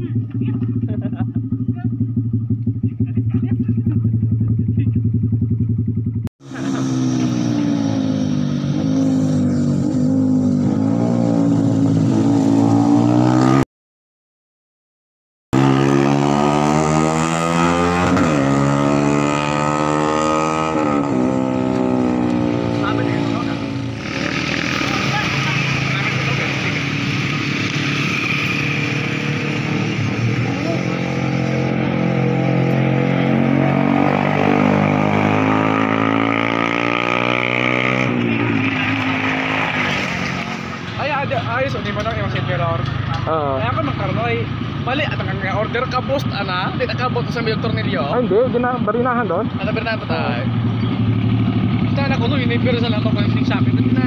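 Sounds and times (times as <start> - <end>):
motorcycle accelerating past: 5.8 - 13.6, 15.6 - 41.1, 50.1 - 54.0.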